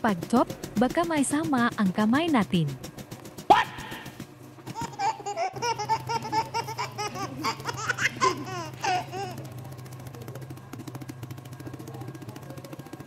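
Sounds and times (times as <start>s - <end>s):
person laughing: 4.7s - 9.5s.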